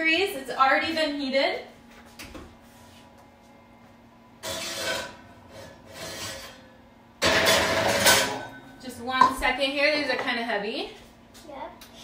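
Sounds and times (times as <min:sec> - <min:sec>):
iron pan scraping oven rack: 0:04.4 - 0:08.6.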